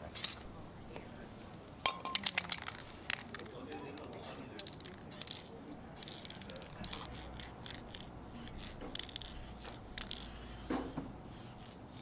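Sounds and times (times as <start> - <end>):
spray paint can hissing: 4.0 - 12.0.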